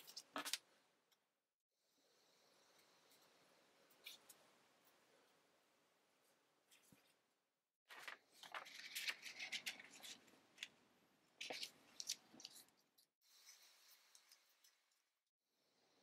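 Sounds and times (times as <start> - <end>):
thin paper rustling: 7.9 - 10.7.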